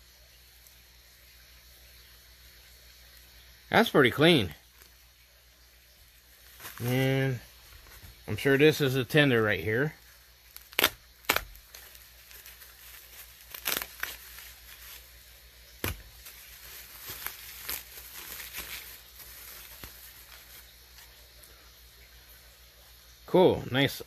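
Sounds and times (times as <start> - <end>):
bubble wrap crinkling: 4.7 - 5.0, 6.2 - 21.5.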